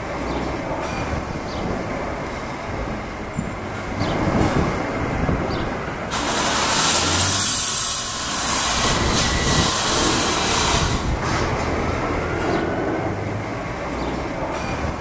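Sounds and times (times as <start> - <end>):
street traffic rushing: 0.0 - 15.0
bright hiss: 6.1 - 11.1.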